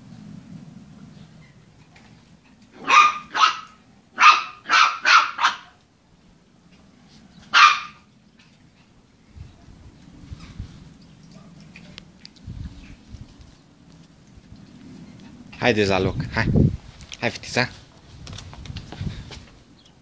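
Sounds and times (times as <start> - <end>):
dog barking: 2.8 - 5.8, 7.5 - 8.1.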